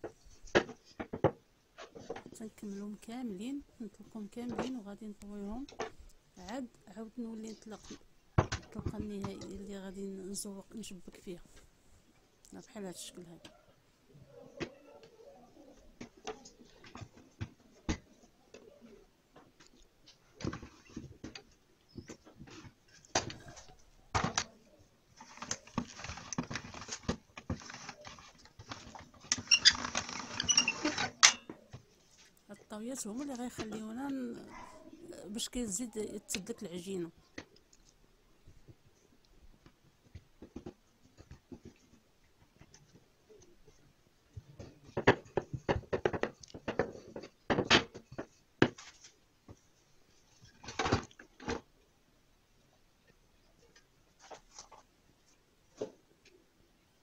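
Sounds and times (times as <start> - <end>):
short high squeaks: 29.4 - 31.4.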